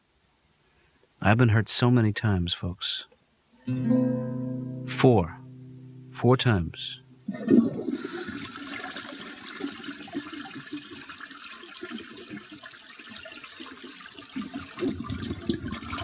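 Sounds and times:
toilet flushing: 7.3 - 16.0.

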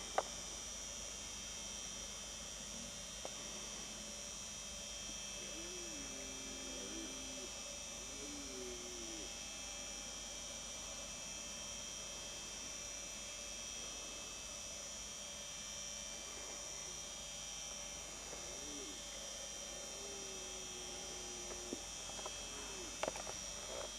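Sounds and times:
steady hum and hiss: 0.0 - 23.9
faint wavering low calls: 5.2 - 9.5, 17.9 - 23.9.

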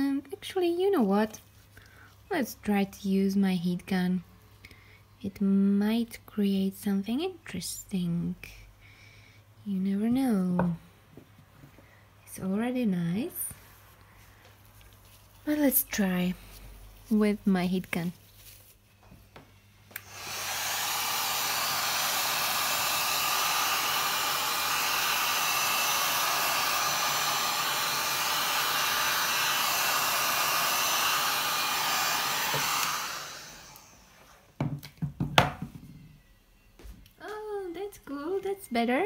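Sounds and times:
heat gun blowing: 19.9 - 34.4.

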